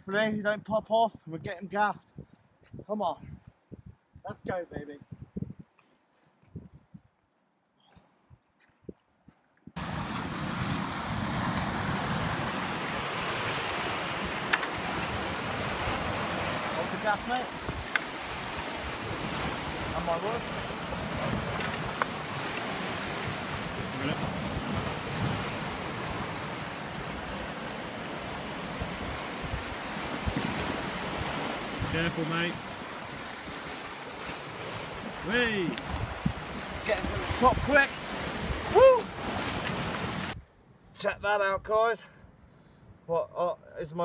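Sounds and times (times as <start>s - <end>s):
wind buffeting microphone: 0.5s - 7.2s, 8.2s - 40.6s
waves washing over rocks: 9.8s - 40.4s.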